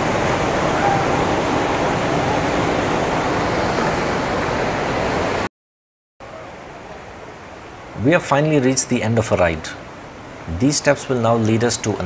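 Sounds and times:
waterfall rushing: 0.0s - 5.5s.

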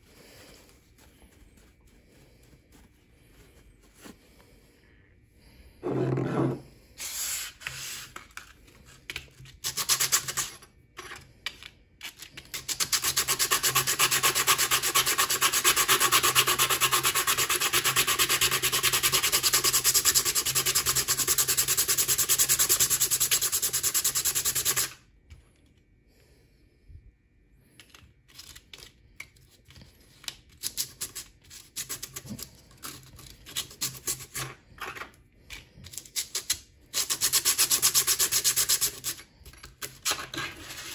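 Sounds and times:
sanding on sandpaper: 12.7s - 24.9s, 37.0s - 39.2s.

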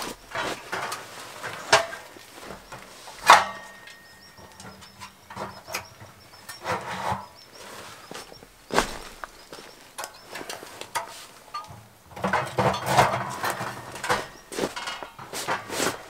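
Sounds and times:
metal stove scraping: 10.4s - 16.0s.

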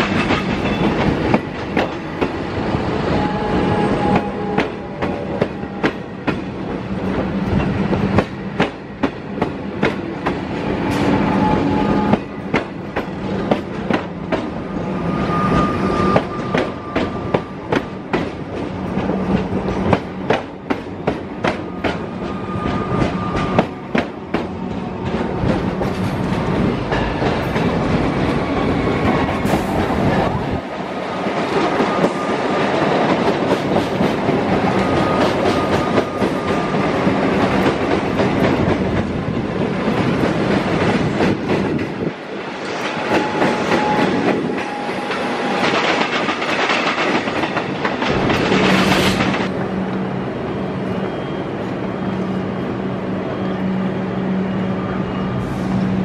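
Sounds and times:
train wheels clacking over rail joints: 0.0s - 2.4s, 42.8s - 49.5s
electric trains rumbling past: 0.0s - 56.0s.

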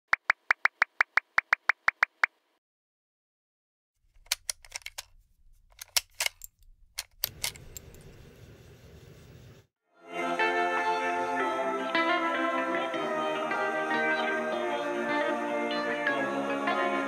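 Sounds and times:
sharp clicks and ticks: 0.1s - 2.4s, 4.1s - 8.2s.

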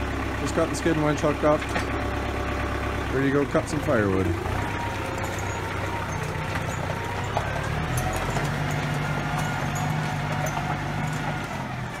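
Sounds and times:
tractor diesel engine running: 0.0s - 12.0s
tire chains clinking: 3.2s - 12.0s.

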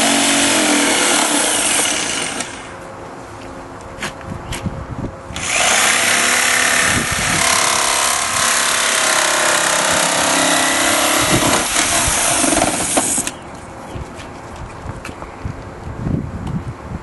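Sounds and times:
jigsaw cutting plastic: 5.4s - 13.3s.

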